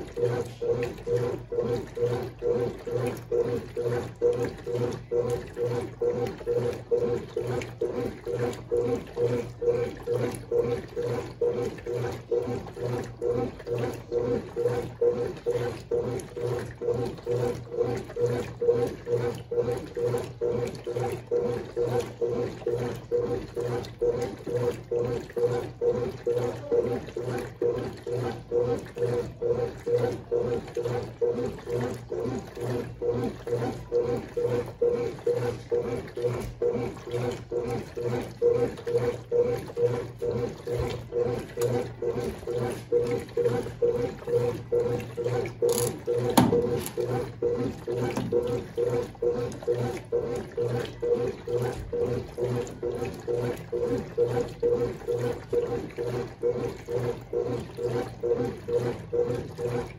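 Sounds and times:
rhythmic water sloshing: 0.0 - 59.9
washing machine motor hum: 0.0 - 59.9.

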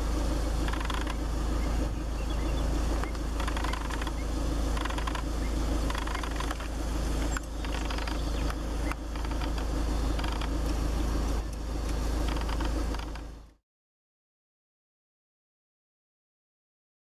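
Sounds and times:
low rumble: 0.0 - 13.6.

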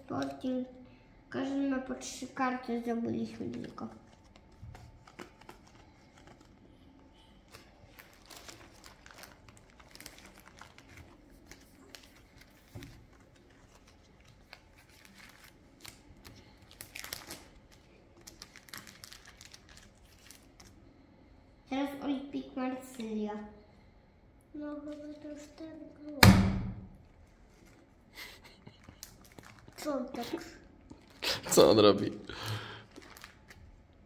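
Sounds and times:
plastic and card rustling: 3.2 - 21.0, 24.6 - 26.2, 27.2 - 33.8.

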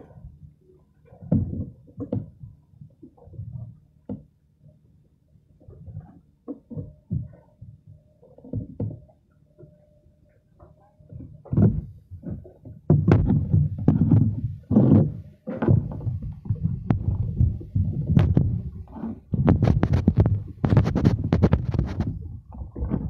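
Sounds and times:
water slapping against wooden platform: 11.5 - 23.0.

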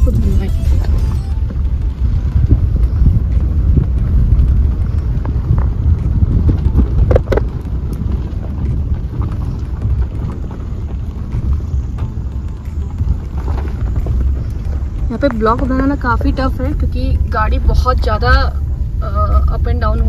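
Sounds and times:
car rumbling over rough road: 0.0 - 20.0.

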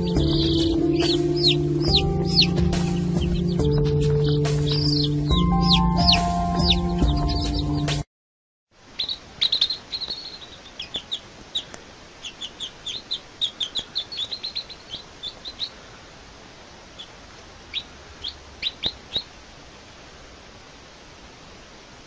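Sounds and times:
chicks peeping: 0.0 - 8.0, 8.9 - 16.2, 16.8 - 19.3
steady hiss: 8.8 - 22.0.

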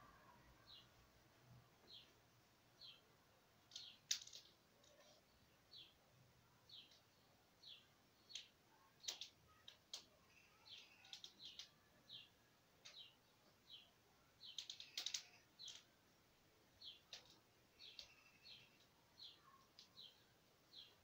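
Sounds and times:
small birds chirping: 0.0 - 21.0
sharp clicks: 8.3 - 10.1, 14.4 - 15.9.

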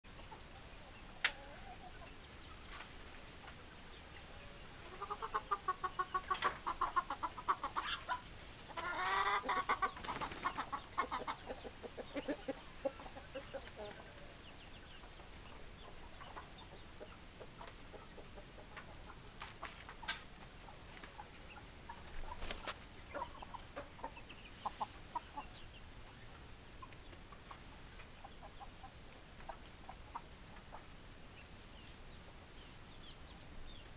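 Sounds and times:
rooster clucking: 4.8 - 14.3.

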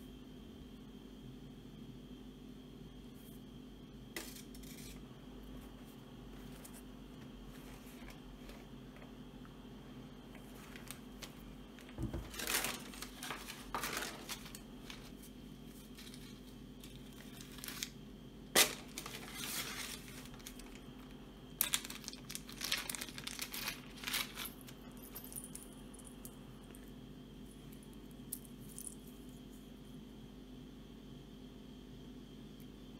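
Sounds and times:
plastic and paper crinkling: 5.6 - 9.1, 10.3 - 18.0, 18.6 - 25.0.

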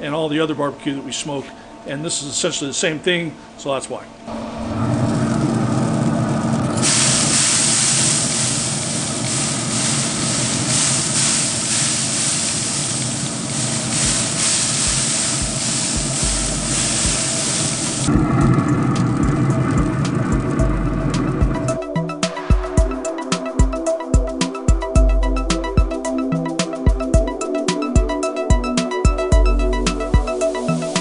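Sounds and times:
smoker hissing: 4.3 - 23.9, 29.5 - 31.0
low rumble: 14.9 - 22.0.

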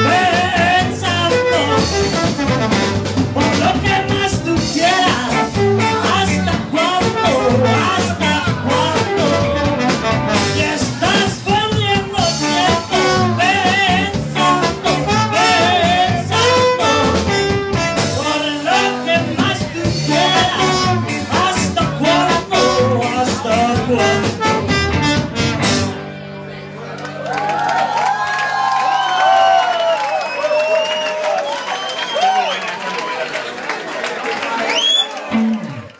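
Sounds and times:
slide trombone: 0.0 - 4.2, 4.8 - 11.3, 12.2 - 19.3, 20.0 - 26.0
live ska band playing: 0.0 - 26.5, 35.1 - 35.9.

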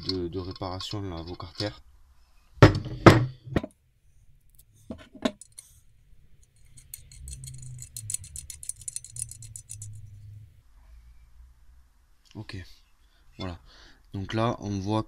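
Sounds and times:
bolt threading metallic ticks: 4.5 - 5.7, 6.4 - 10.0
metal bolt clinks and knocks: 4.5 - 5.7, 6.4 - 10.1.

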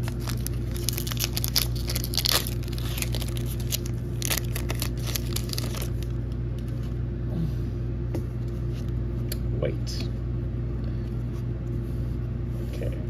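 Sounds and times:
foil pack crackling and rustling: 0.0 - 6.3.

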